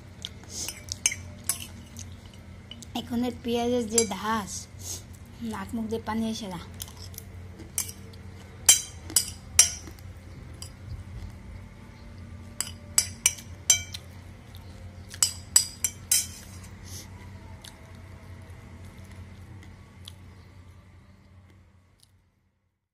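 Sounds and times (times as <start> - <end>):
spoon clinking on ceramic plate: 12.6 - 14.0, 15.2 - 16.4.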